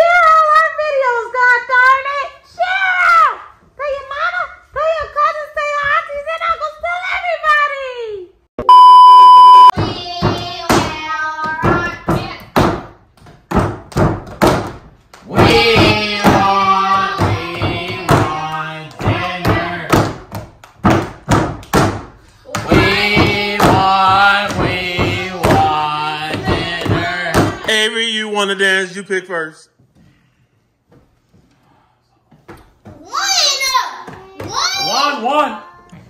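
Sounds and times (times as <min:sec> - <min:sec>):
loud electronic beep: 0:08.6 - 0:09.7
children chanting a rhyme: 0:09.8 - 0:12.4, 0:15.3 - 0:20.0, 0:22.5 - 0:27.6
hands clapping and slapping table: 0:11.7 - 0:27.7.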